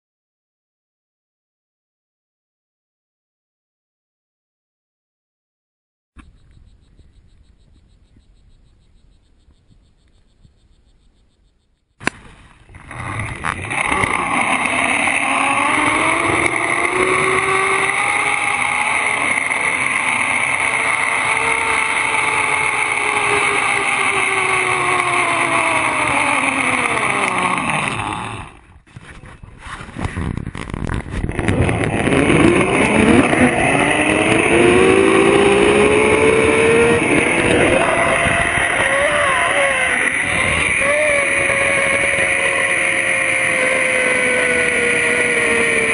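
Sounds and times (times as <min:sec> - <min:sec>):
zip line pulleys whirring on cable: 0:12.7 - 0:28.8, 0:30.0 - 0:45.9.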